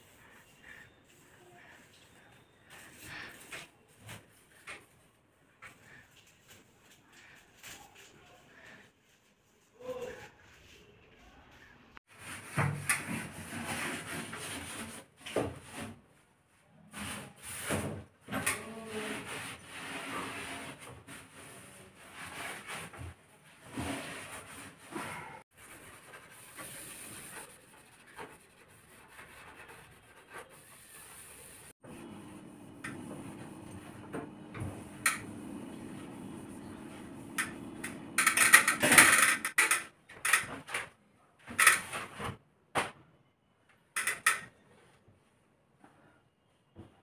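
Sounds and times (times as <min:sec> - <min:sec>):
cloth rubbing on cabinet: 0:18.7 - 0:38.2
steady low hum: 0:31.8 - 0:38.2.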